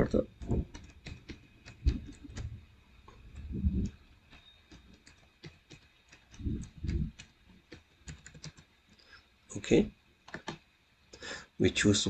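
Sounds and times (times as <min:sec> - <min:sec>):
keyboard typing: 0:00.0 - 0:08.8, 0:10.2 - 0:10.6.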